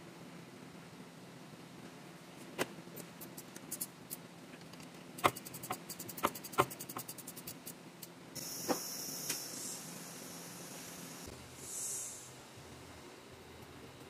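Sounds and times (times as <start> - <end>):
ratchet wrench clicking: 5.2 - 8.1
high hiss: 8.4 - 12.8.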